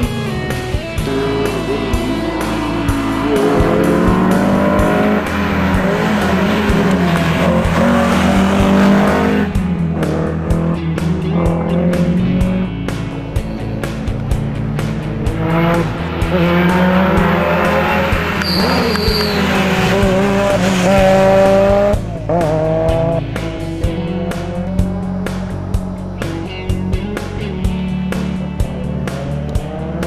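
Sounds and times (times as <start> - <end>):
music with steady beat: 0.0 - 30.0
rally car engine revving: 0.0 - 30.0.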